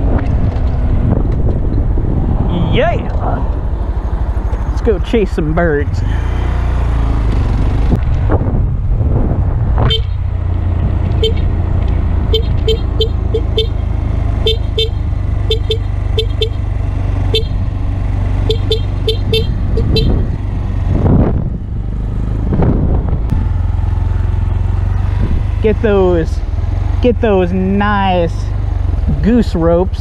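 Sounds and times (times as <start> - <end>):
motorcycle engine droning: 0.0 - 30.0
motorcycle horn beeps: 9.9 - 10.2, 11.2 - 11.5, 12.2 - 17.7, 18.4 - 20.3.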